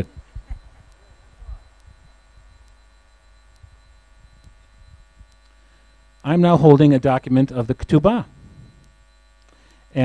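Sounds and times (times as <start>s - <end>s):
microphone handling thumps: 0.2s - 0.8s.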